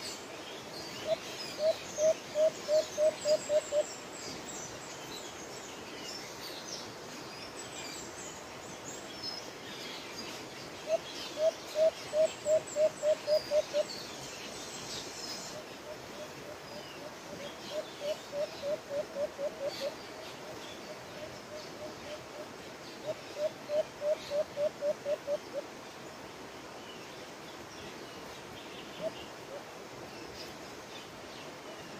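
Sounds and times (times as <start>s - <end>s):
dove cooing: 1.0s - 3.8s, 10.9s - 13.8s, 15.8s - 20.0s.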